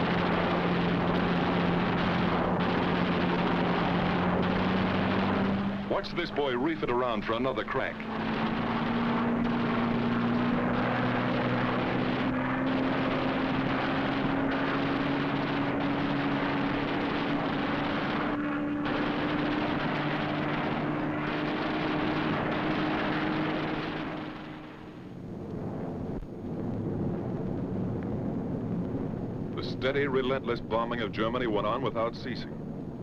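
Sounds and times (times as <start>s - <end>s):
propeller plane piston engine: 0.0s - 26.4s
dense rushing noise: 0.0s - 33.0s.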